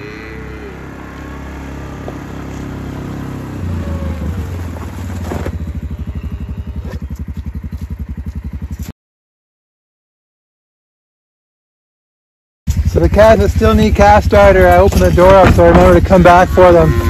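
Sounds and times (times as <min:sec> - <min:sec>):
quad bike engine idling: 0:00.0 - 0:08.9, 0:12.7 - 0:17.0.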